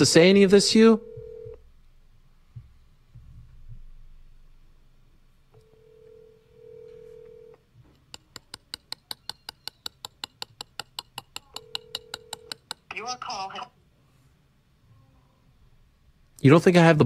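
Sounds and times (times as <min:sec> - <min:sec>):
telephone ringback tone: 0:00.9 - 0:01.6, 0:05.6 - 0:07.6, 0:11.6 - 0:12.6
fast sharp clicks: 0:08.0 - 0:12.9.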